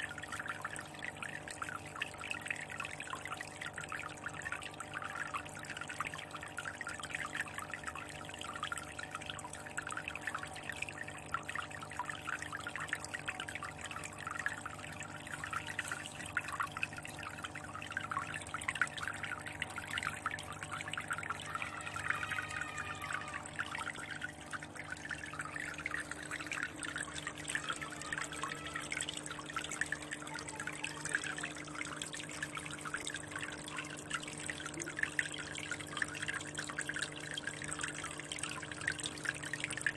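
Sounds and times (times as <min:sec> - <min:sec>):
water trickling into aquarium: 0:00.0 - 0:39.9.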